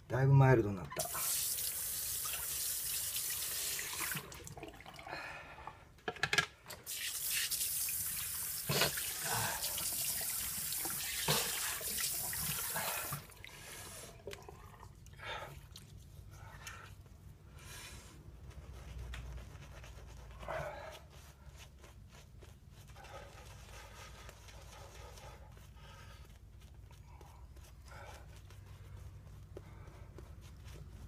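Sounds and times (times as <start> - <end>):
tap water running into sink: 1.0 - 5.0, 6.8 - 13.3
water dripping: 14.2 - 15.9.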